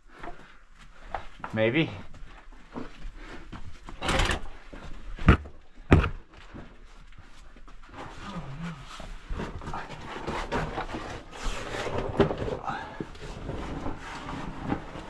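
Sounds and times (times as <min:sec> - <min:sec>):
person breathing hard: 0:02.0 - 0:03.8.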